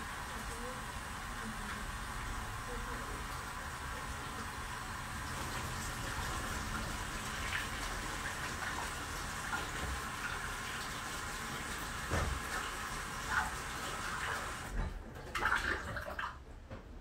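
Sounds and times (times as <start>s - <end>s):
tap running into sink: 5.3s - 10.9s, 11.5s - 15.6s.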